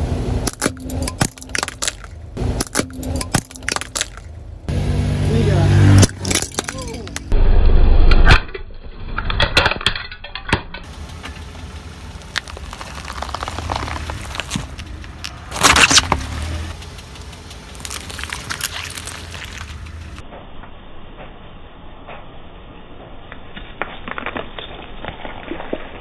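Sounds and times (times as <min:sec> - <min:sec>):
car rumbling: 0:00.0 - 0:08.3, 0:10.3 - 0:23.3
tyre crunching objects: 0:00.5 - 0:04.4, 0:06.0 - 0:07.3, 0:12.1 - 0:16.8, 0:17.6 - 0:20.2
hard plastic cracking: 0:12.2 - 0:16.3.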